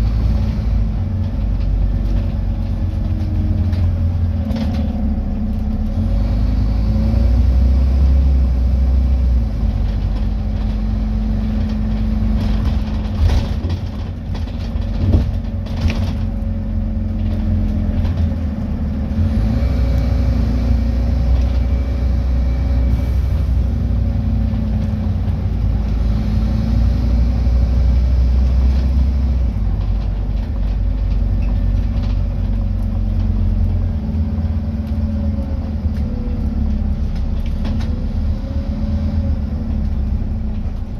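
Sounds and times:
diesel bus engine droning: 0:00.0 - 0:40.9
road rumble: 0:00.0 - 0:40.9
bus body knocks and rattles: 0:09.6 - 0:18.9, 0:27.6 - 0:34.9.

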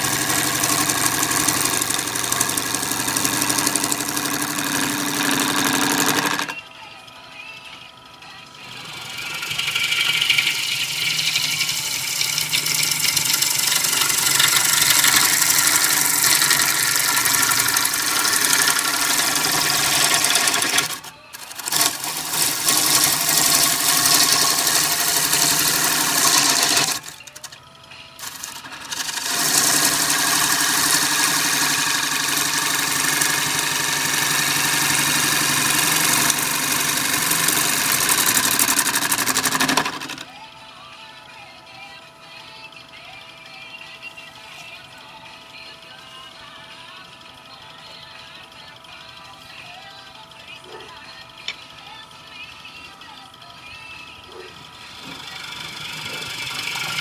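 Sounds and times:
lathe gouge cutting wood: 0:00.0 - 0:06.6, 0:08.6 - 0:27.5, 0:28.2 - 0:40.2, 0:54.6 - 0:57.0.

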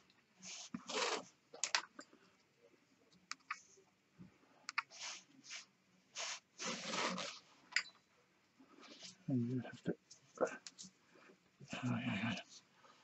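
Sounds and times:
cord rustling: 0:04.8 - 0:07.5.

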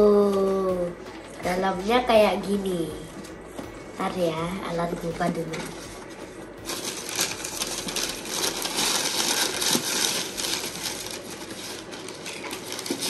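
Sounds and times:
packaging rustling and crinkling: 0:05.2 - 0:13.0.

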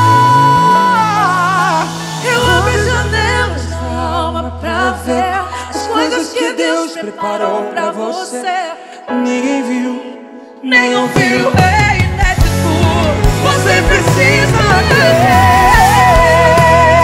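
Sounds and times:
low bass notes: 0:00.0 - 0:05.6, 0:12.0 - 0:17.0
instrumental backing: 0:00.0 - 0:06.4, 0:09.1 - 0:17.0
gospel duet singing with vibrato: 0:00.0 - 0:17.0.

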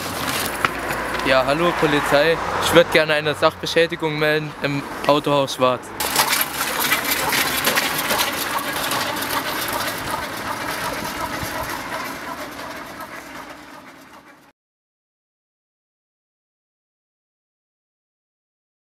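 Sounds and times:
mechanical rattling clatter: 0:06.0 - 0:14.5.

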